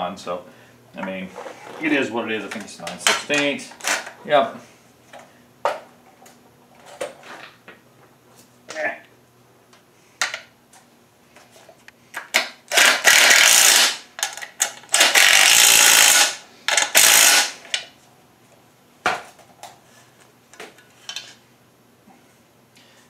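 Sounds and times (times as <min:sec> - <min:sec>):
metal parts clicking and knocking: 0:12.2 - 0:17.8
cordless ratchet running: 0:12.7 - 0:14.0, 0:14.9 - 0:17.6.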